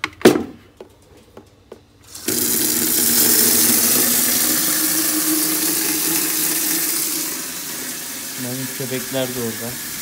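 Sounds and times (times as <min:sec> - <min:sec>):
water pouring into metal basin: 0:02.1 - 0:10.0.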